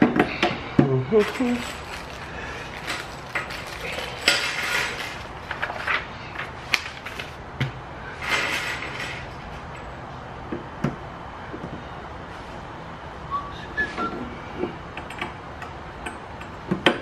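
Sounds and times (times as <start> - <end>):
paper and plastic bag rustling: 1.1 - 7.4.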